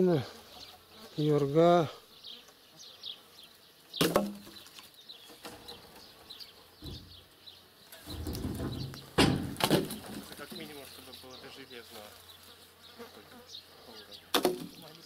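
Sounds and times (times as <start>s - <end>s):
wooden poles knocking on pile: 4.0s - 4.6s, 8.0s - 10.8s, 14.3s - 14.8s.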